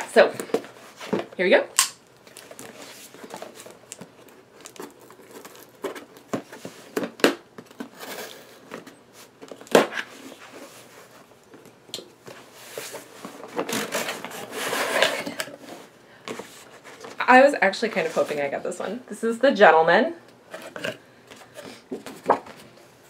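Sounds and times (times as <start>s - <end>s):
cardboard box rustling: 2.3s - 11.3s, 12.4s - 17.2s.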